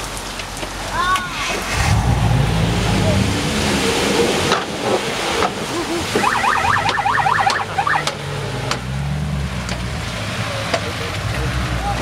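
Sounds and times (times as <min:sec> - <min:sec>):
vehicle driving through muddy water: 0:00.0 - 0:12.0
fast electronic warbling siren: 0:06.2 - 0:08.1.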